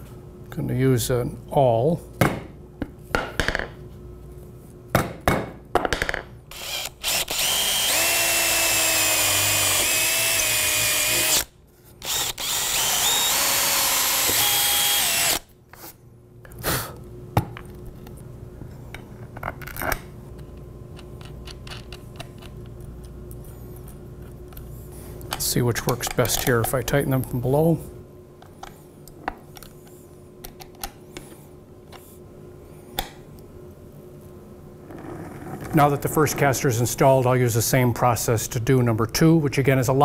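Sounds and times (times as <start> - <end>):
drill boring through plywood: 6.5 - 15.5.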